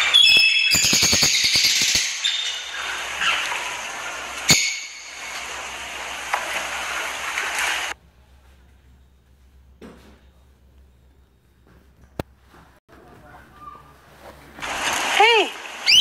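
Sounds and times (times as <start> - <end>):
parrot whistling: 0.0 - 3.5.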